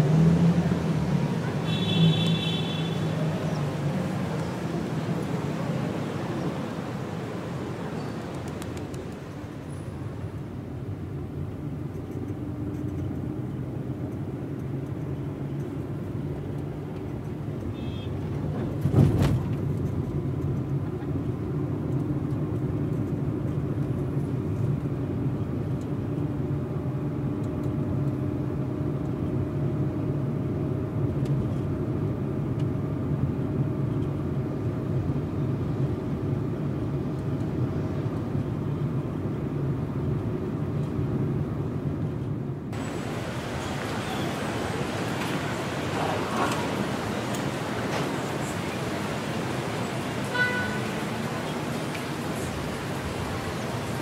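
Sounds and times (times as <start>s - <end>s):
traffic engine hum: 0.0s - 54.0s.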